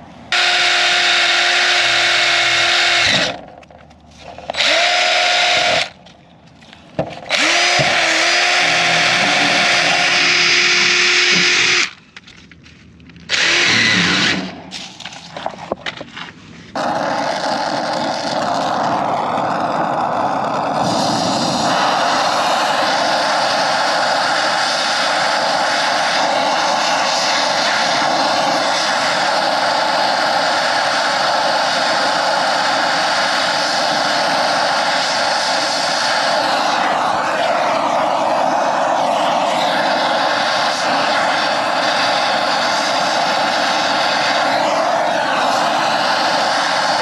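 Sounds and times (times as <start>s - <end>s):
drill wire brush whine: 0.3s - 6.0s, 7.2s - 12.0s, 13.3s - 15.0s, 16.7s - 47.0s
torch flame hissing: 16.7s - 47.0s.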